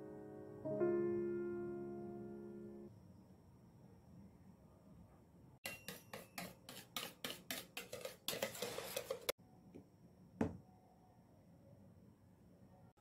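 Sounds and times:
utensil tapping a mixing bowl: 5.6s - 9.2s
utensil scraping a bowl: 5.6s - 9.4s.

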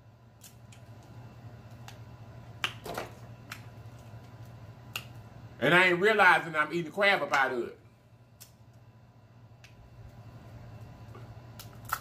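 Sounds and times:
low steady hum: 0.0s - 12.0s
crab shell snapping: 4.9s - 5.2s, 11.5s - 12.0s.

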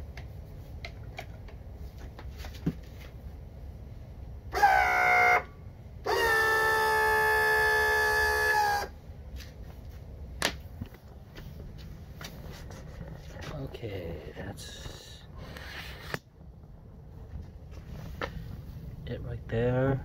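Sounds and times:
electric tilt motor whining: 6.1s - 8.9s.

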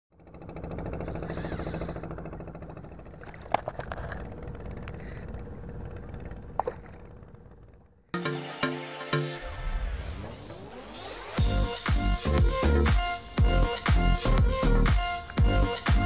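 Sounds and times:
engine running steadily: 0.2s - 7.9s, 11.3s - 16.0s
music: 8.2s - 16.0s.

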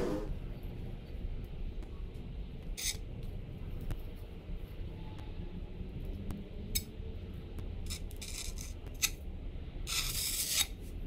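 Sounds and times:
trowel scraping mortar: 7.9s - 9.1s, 9.9s - 10.8s.

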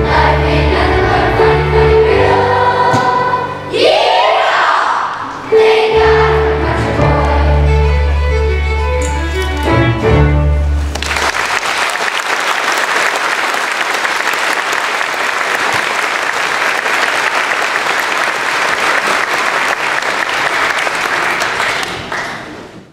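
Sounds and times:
music: 0.0s - 11.3s
audience applauding: 10.8s - 22.7s.

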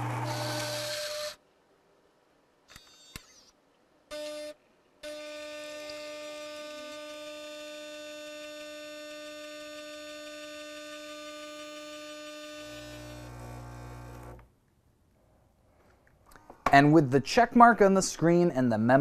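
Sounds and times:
espresso machine pump buzzing: 0.0s - 1.4s, 4.1s - 14.4s.

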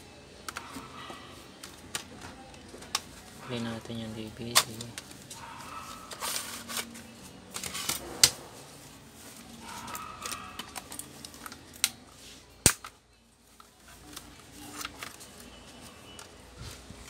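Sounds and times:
sharp plastic snaps: 12.6s - 13.0s.

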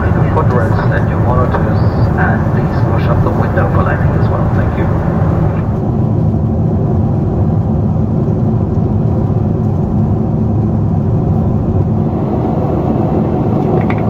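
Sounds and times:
airplane cabin engine rumble: 0.0s - 14.0s.

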